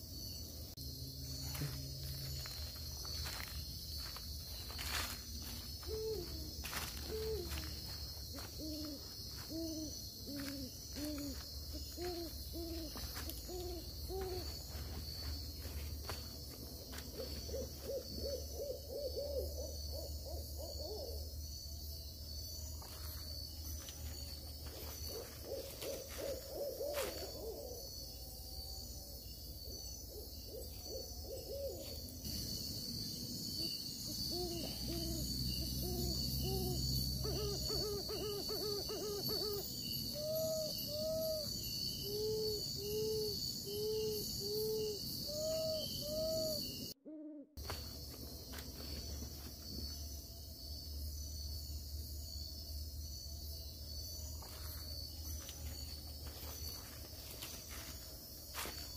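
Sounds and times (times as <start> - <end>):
high insect drone: 0.0 - 58.9
owl hooting: 5.8 - 14.5, 17.2 - 21.3, 25.1 - 27.8, 30.1 - 32.0, 34.1 - 47.6.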